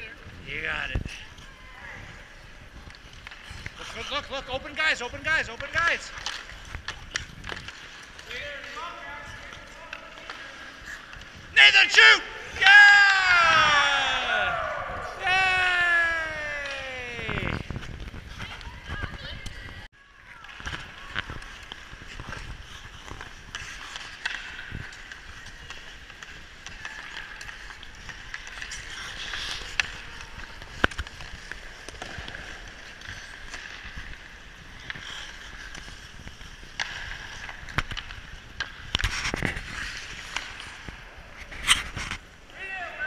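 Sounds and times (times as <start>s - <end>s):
ice skates scraping on ice: 0.0s - 43.0s
hockey sticks hitting puck: 2.0s - 43.0s.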